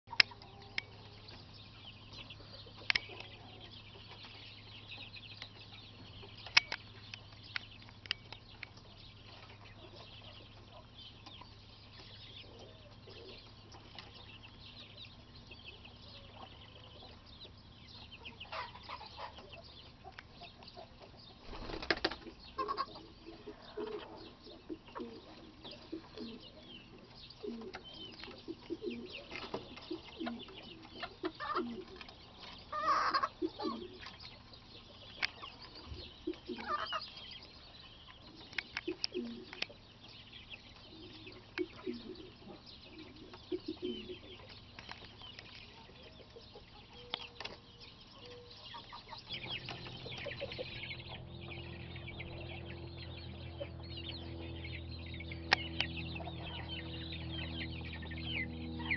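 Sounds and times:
chickens clucking and calling: 0:00.0 - 0:58.9
steady low hum: 0:00.1 - 0:58.9
chicken squawk: 0:22.6 - 0:24.2, 0:32.7 - 0:34.0, 0:36.6 - 0:37.0.

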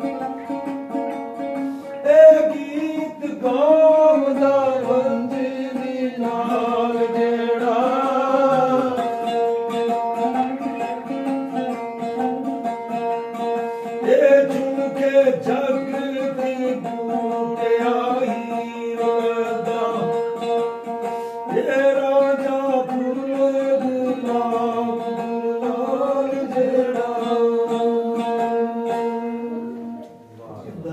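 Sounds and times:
plucked string instrument: 0:00.0 - 0:30.9
man singing devotional song: 0:02.0 - 0:09.6, 0:14.0 - 0:20.6, 0:21.4 - 0:30.0.

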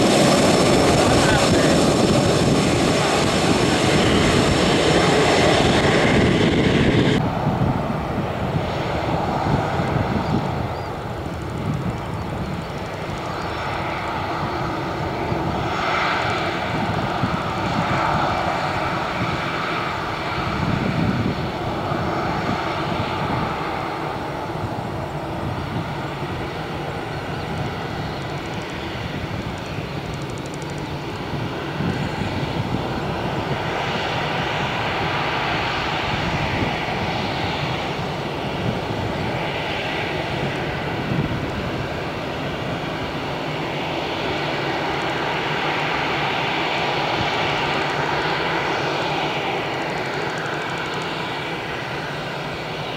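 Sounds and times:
jet engines whining: 0:00.0 - 0:52.9.

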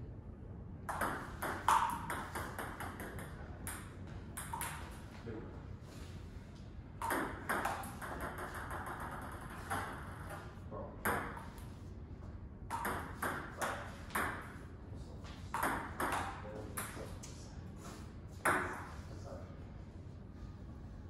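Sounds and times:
table tennis ball hits and bounces: 0:00.9 - 0:05.0, 0:07.0 - 0:11.6, 0:12.7 - 0:14.6, 0:15.3 - 0:17.3, 0:18.3 - 0:19.0.

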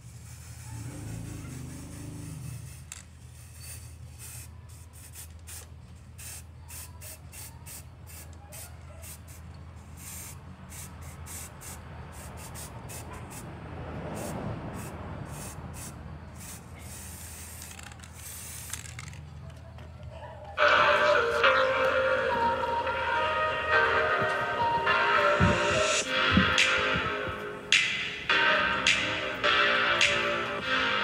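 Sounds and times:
spray-paint can hissing: 0:00.0 - 0:13.4, 0:14.1 - 0:19.2.

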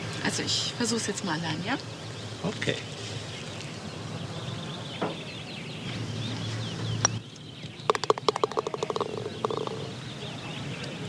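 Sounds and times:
birds chirping: 0:00.0 - 0:11.0
ball dropping into cup: 0:07.9 - 0:09.9
putter tapping golf ball: 0:07.9 - 0:09.9.

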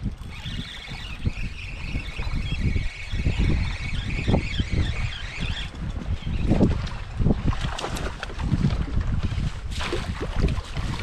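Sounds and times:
wind buffeting microphone: 0:00.0 - 0:11.0
high-pitched whine: 0:00.2 - 0:05.8.

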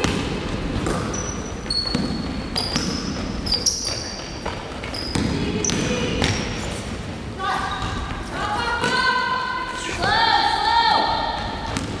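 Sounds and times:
basketball bouncing on wooden floor: 0:00.0 - 0:06.4
sneakers squeaking: 0:00.0 - 0:09.1.

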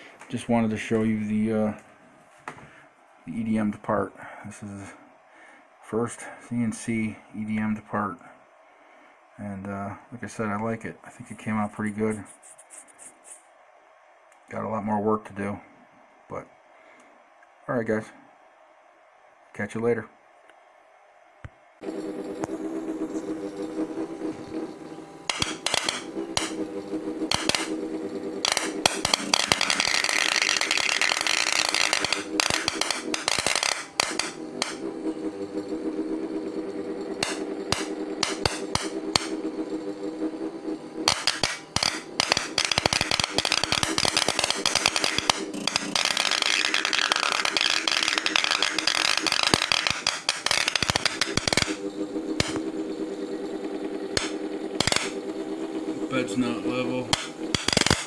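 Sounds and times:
steady hum: 0:00.0 - 0:58.0
electrical sparks snapping: 0:25.3 - 0:26.6, 0:27.2 - 0:27.8, 0:28.4 - 0:34.8, 0:37.2 - 0:39.4, 0:41.1 - 0:51.8, 0:52.4 - 0:52.6, 0:54.1 - 0:55.2, 0:57.1 - 0:58.0.

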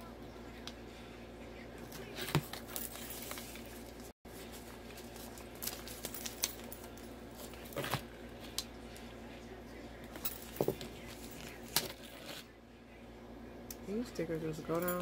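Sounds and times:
paper rustling: 0:02.0 - 0:08.1.

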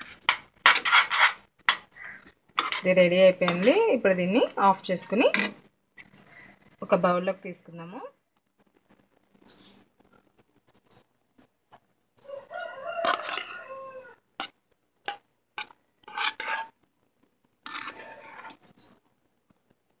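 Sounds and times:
spoon scraping plastic box: 0:00.0 - 0:06.3, 0:12.9 - 0:13.6, 0:15.1 - 0:16.8, 0:17.7 - 0:18.9
rooster crowing: 0:12.2 - 0:14.2.

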